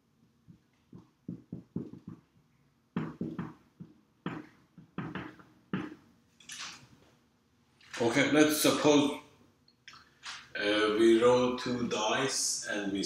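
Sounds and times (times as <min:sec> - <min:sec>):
marker writing on whiteboard: 0:00.4 - 0:06.6.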